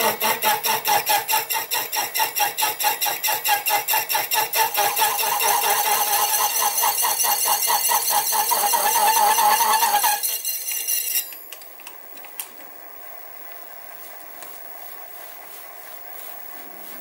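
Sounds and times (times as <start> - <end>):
saw blade screeching on metal: 0.0 - 11.4.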